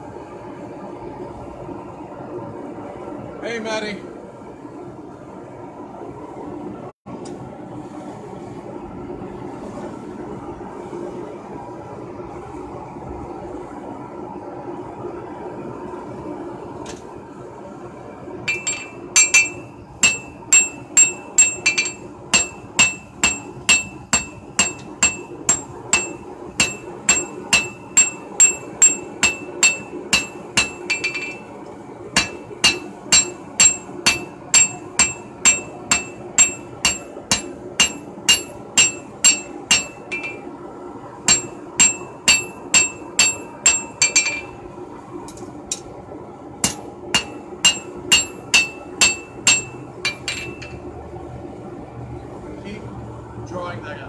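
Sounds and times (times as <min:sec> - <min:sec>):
steady hum: 0:00.0 - 0:54.0
hammer striking steel on anvil: 0:18.5 - 0:31.5, 0:32.2 - 0:40.5, 0:41.3 - 0:44.6, 0:46.6 - 0:50.8.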